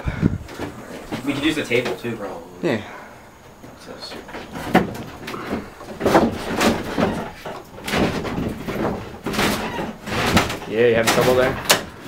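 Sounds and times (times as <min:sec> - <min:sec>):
boards and table being shifted: 0:03.4 - 0:12.0
knocks and scrapes on wood: 0:03.6 - 0:11.9.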